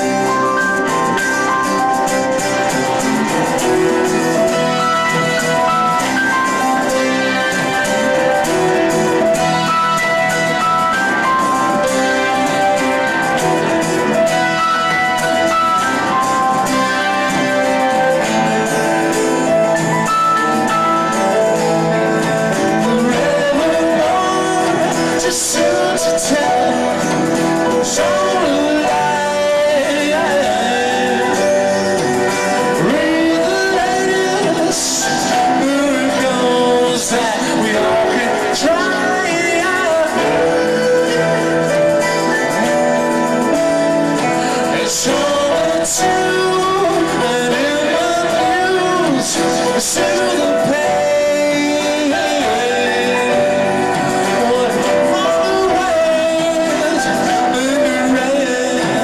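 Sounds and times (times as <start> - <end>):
live rock band playing: 0.0 - 59.0.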